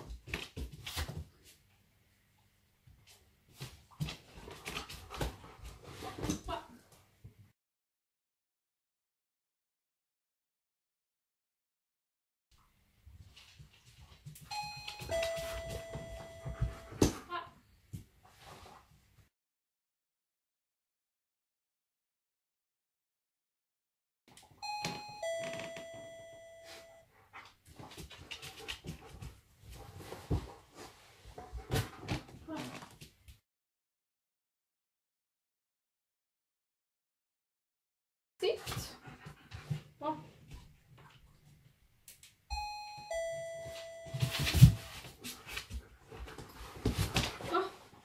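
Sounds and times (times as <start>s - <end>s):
dog paws scuffling on floor: 0.0s - 1.7s, 13.1s - 17.2s, 27.7s - 33.4s, 43.5s - 48.0s
two-tone doorbell chime: 14.5s - 17.0s, 24.6s - 27.0s, 42.5s - 45.0s.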